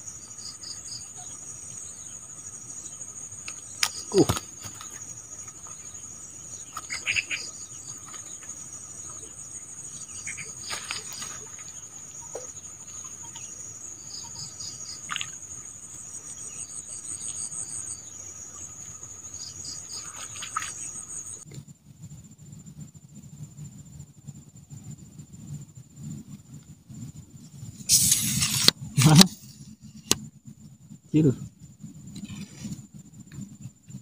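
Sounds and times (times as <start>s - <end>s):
high-pitched insect trilling: 0.0s - 21.4s.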